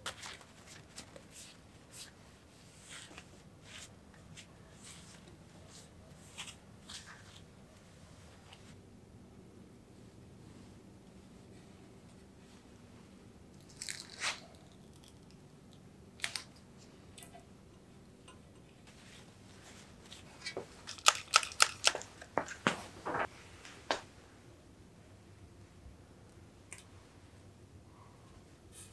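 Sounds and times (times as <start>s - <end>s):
paper and tape crackling: 20.5s - 23.3s.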